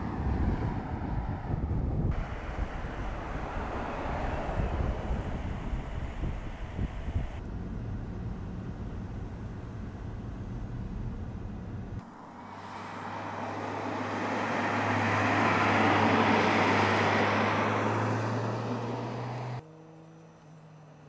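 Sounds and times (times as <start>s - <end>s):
low cabin rumble: 0.0s - 13.6s
car driving past: 2.2s - 7.4s, 12.0s - 21.0s.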